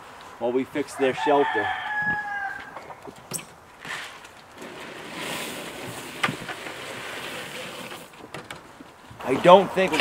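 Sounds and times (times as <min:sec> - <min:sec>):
rooster crowing: 0:00.9 - 0:03.0
grain pouring into wooden box: 0:04.6 - 0:08.1.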